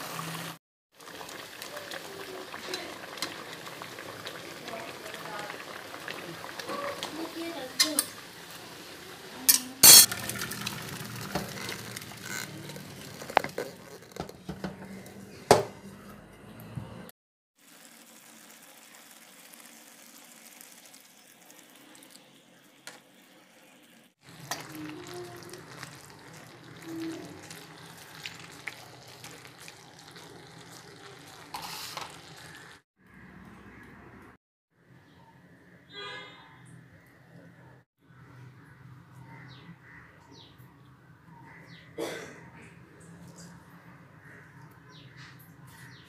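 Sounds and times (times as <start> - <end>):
food simmering and sizzling in wok: 0.0 - 14.6, 17.6 - 33.2
rice and water poured into colander: 10.0 - 14.2, 17.6 - 22.8, 23.4 - 32.8.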